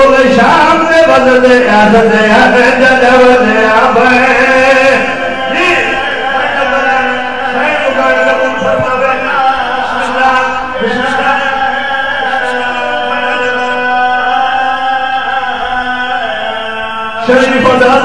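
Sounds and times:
men chanting devotional song: 0.0s - 18.0s.

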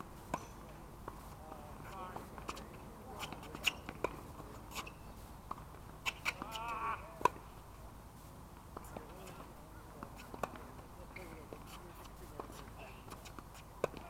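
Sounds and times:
shoe squeal on court: 4.7s - 5.1s.

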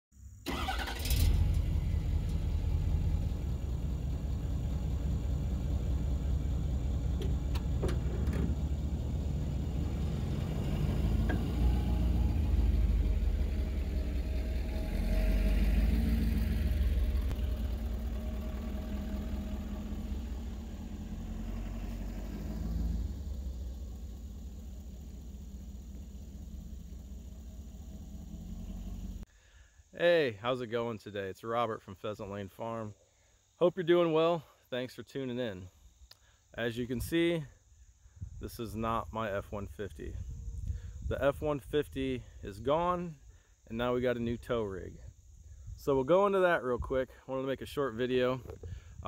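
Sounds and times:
diesel truck engine rumbling: 0.4s - 29.3s.

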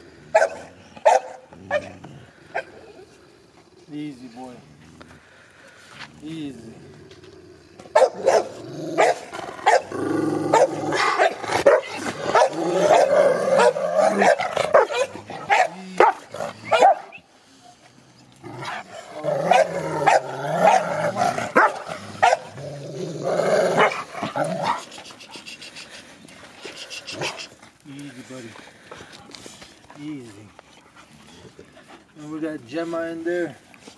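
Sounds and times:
dog barking and growling: 0.2s - 3.1s, 7.2s - 17.2s, 18.4s - 25.6s, 26.8s - 27.6s.

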